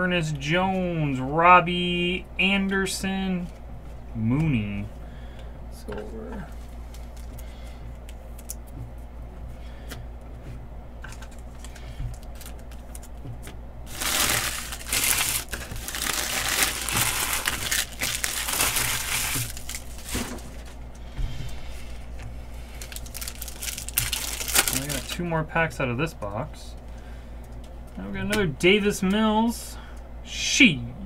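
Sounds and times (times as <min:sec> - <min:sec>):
foil wrapper crinkling: 0:06.5 - 0:08.8, 0:11.0 - 0:13.2, 0:13.9 - 0:20.8, 0:22.5 - 0:25.2.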